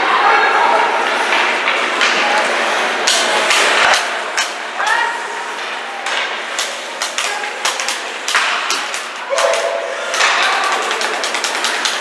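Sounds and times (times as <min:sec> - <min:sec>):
hockey sticks and puck clacking: 0:01.2 - 0:12.0
people calling out: 0:09.2 - 0:12.0.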